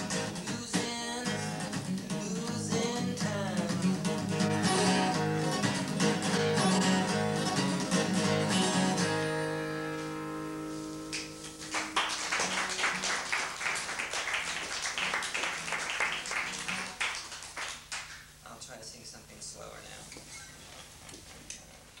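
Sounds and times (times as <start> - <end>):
acoustic guitar strumming: 0.0 - 17.3
audience clapping: 11.1 - 18.3.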